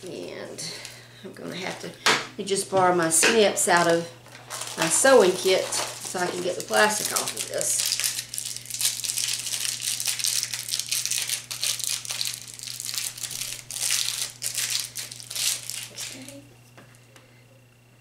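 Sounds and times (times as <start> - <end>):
plastic packaging crinkling: 3.8 - 16.4.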